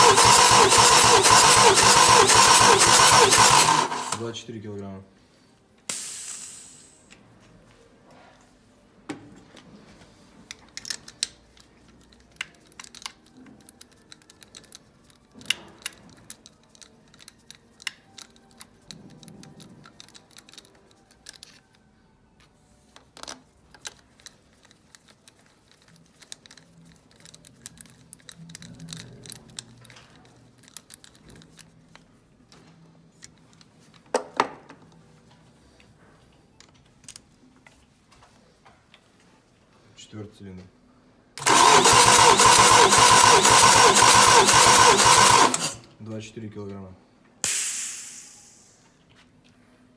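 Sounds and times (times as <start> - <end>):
metallic clicks and clinks: 10.7 - 21.8.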